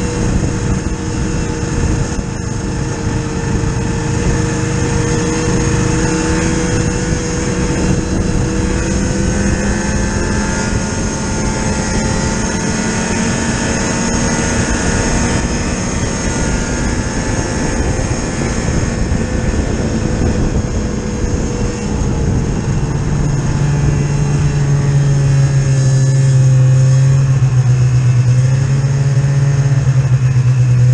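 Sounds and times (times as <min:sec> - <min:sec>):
snowmobile engine running: 0:00.0 - 0:30.9
wind rush while moving: 0:00.0 - 0:30.9.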